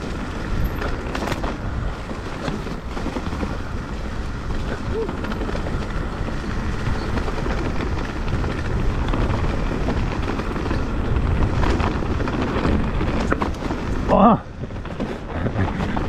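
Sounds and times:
bike tyre rumbling on trail: 0:00.0 - 0:16.0
wind buffeting microphone: 0:00.0 - 0:16.0.

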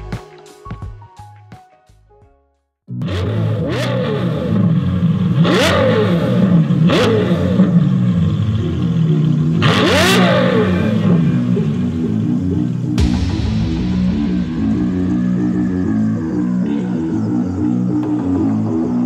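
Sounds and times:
sports car engine revving: 0:03.0 - 0:13.0.

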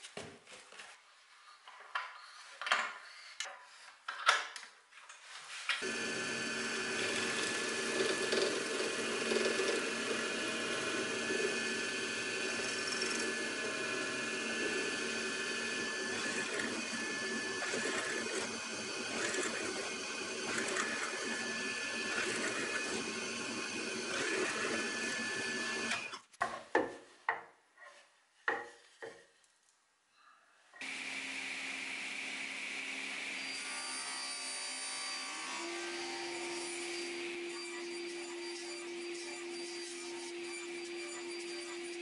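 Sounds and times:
mortiser cutting wood: 0:05.8 - 0:26.2.

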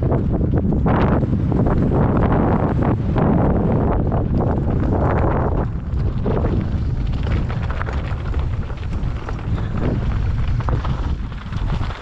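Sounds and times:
bike riding low rumble: 0:00.0 - 0:12.0
wind buffeting microphone: 0:00.0 - 0:12.0
bike knocks and rattles: 0:04.1 - 0:12.0.

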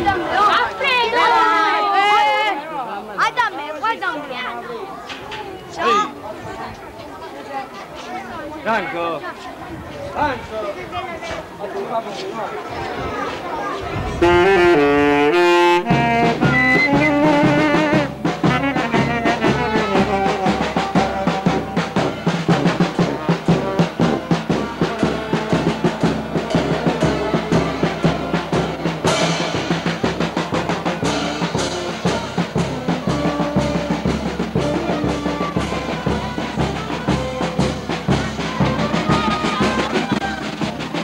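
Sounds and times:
wind and brass melody: 0:13.8 - 0:41.0
bass drum and snare: 0:14.1 - 0:41.0.

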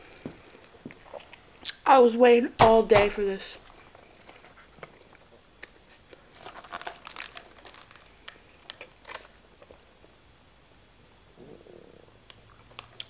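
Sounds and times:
chewing and mouth clicks: 0:00.6 - 0:01.8, 0:12.3 - 0:13.0
crackly clicks: 0:03.6 - 0:09.4, 0:12.3 - 0:13.0.

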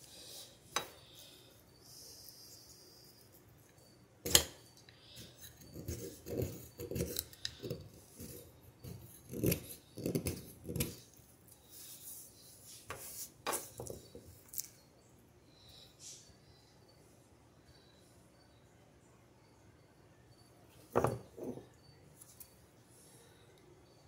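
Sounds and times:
knife scraping on sharpening stone: 0:04.3 - 0:11.1.

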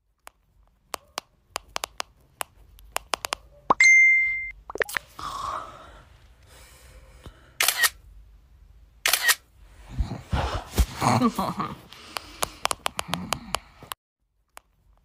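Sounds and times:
camera shutter clicking: 0:07.6 - 0:08.0, 0:09.0 - 0:09.4.

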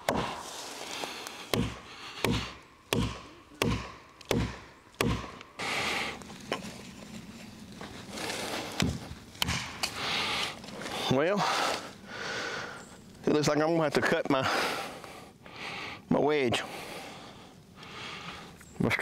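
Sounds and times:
hammer striking wedge: 0:01.5 - 0:05.4.

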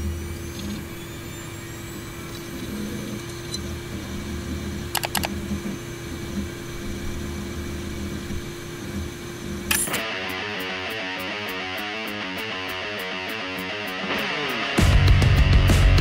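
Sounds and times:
hard drive whirring and clicking: 0:00.0 - 0:14.5
computer fan hum: 0:00.0 - 0:15.2
mouse double-click: 0:05.0 - 0:05.3.

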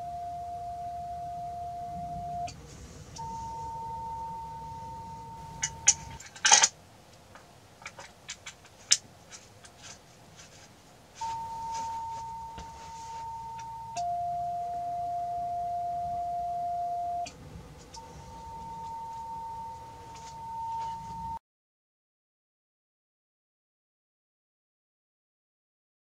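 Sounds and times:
higher steady tone: 0:00.0 - 0:06.2, 0:11.2 - 0:21.4
loud metal clatter: 0:05.6 - 0:06.7
steady radio tone: 0:17.9 - 0:21.4.

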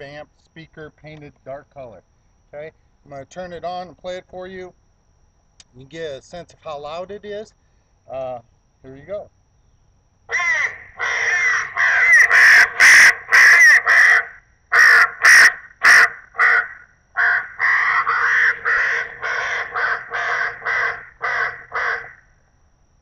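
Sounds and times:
crow caws through speaker: 0:10.3 - 0:22.2.

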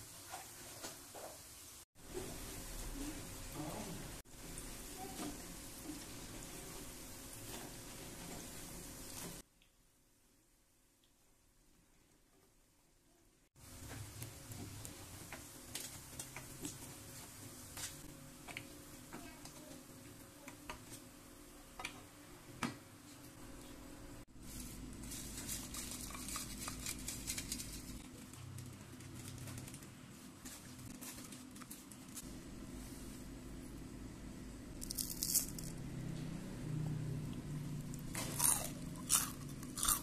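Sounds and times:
food deep-frying in hot oil: 0:00.0 - 0:09.5, 0:13.6 - 0:21.9.

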